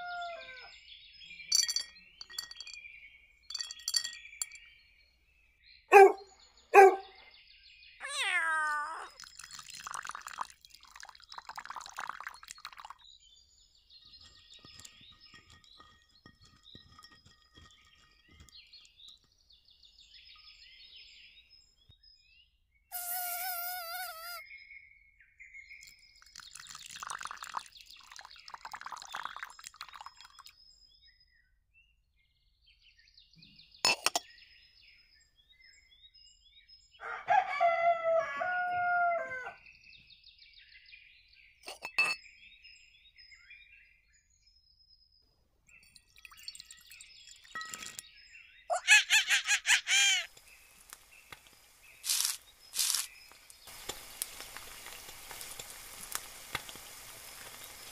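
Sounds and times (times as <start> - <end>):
rooster crowing: 0.0 - 0.7, 37.0 - 39.6
faint small birds chirping: 0.0 - 37.3, 39.2 - 57.9
dishes being set down: 1.5 - 2.8, 3.5 - 4.6, 33.9 - 34.3, 41.7 - 42.2.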